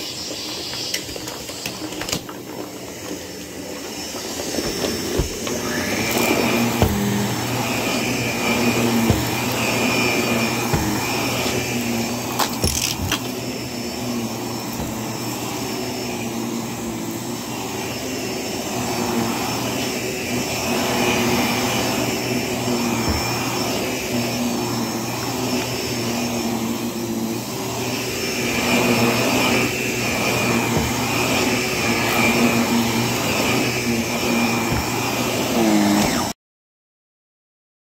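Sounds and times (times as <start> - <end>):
vacuum cleaner running on carpet: 0.0 - 36.4.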